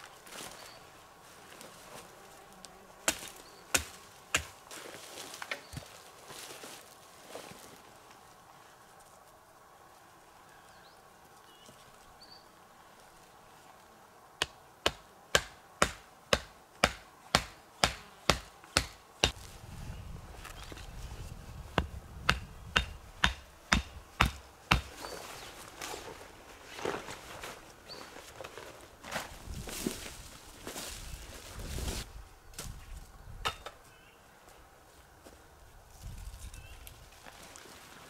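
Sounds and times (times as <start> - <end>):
axe chopping wood: 3.1 - 4.6, 14.4 - 19.4, 21.8 - 24.9
faint bird chirps: 33.2 - 34.4.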